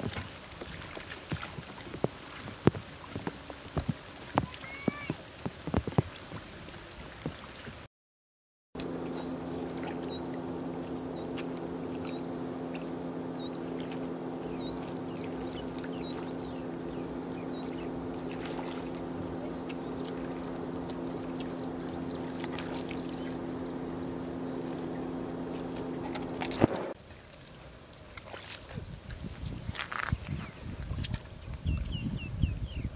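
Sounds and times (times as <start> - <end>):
low motor drone: 8.8 - 27.0.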